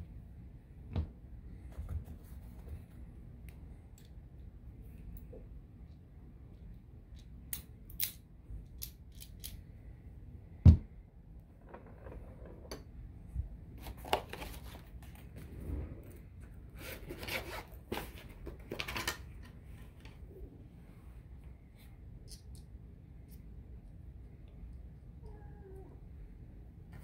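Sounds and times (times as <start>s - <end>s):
rubbing and scraping: 13.9s - 20.0s.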